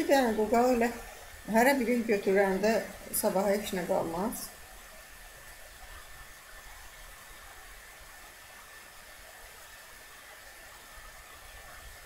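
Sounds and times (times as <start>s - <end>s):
background hiss: 0.0s - 12.0s.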